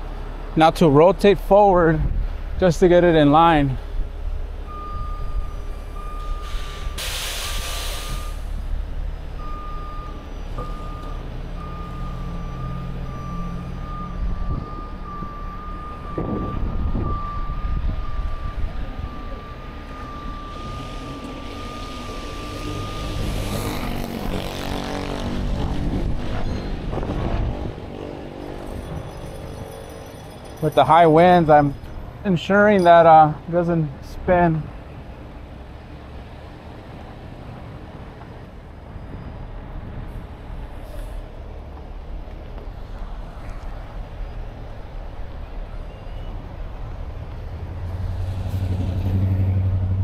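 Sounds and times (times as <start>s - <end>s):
air hiss: 6.4s - 8.6s
warning alarm beeping: 9.4s - 23.6s.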